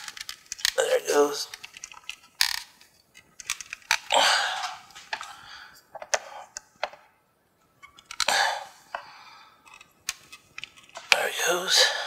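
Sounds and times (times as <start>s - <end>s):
sharp plastic clicks: 0.0s - 0.8s, 1.4s - 4.2s, 7.9s - 8.4s, 9.0s - 11.3s.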